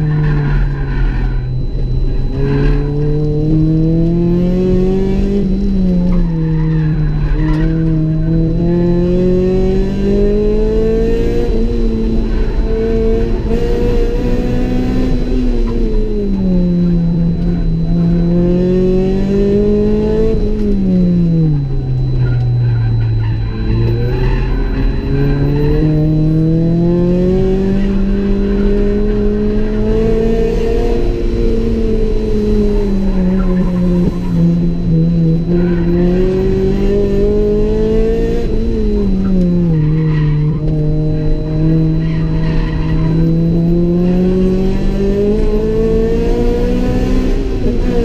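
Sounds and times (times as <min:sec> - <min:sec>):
car engine revving in cabin: 0:00.0 - 0:48.0.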